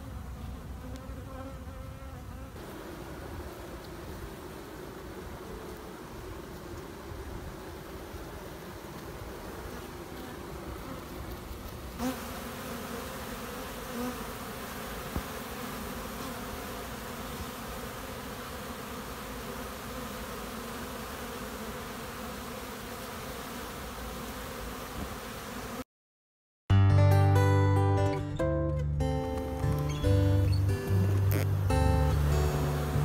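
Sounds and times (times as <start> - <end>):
bees buzzing: 0.0 - 25.9, 29.4 - 33.0.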